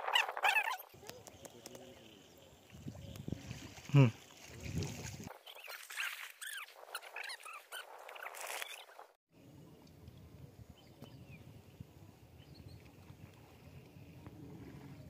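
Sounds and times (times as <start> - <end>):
birds chirping: 0.0 - 4.2
river water rumbling: 0.0 - 6.3.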